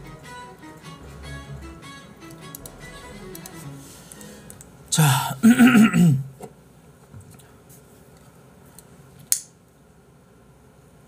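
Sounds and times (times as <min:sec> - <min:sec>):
man clearing his throat: 0:05.0 - 0:06.3.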